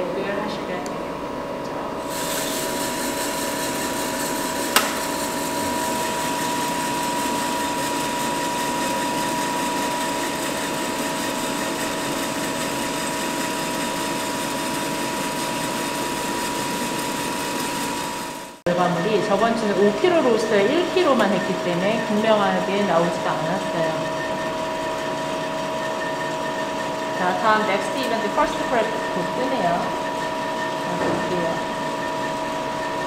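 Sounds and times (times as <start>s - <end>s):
coffee roaster fan whirring: 0.0s - 33.0s
sharp click: 4.8s - 5.1s.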